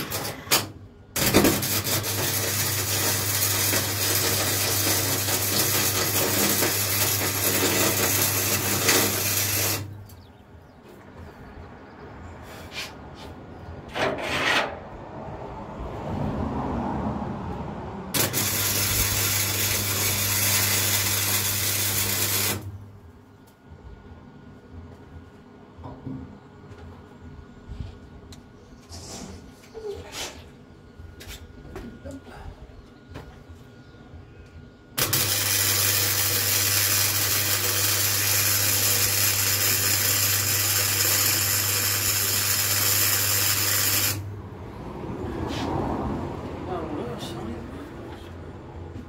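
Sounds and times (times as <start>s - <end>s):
welder arc crackling on steel: 0.0s - 10.3s, 18.1s - 22.8s, 35.0s - 44.3s
welder low hum: 0.0s - 10.7s, 18.1s - 23.0s, 35.0s - 44.3s.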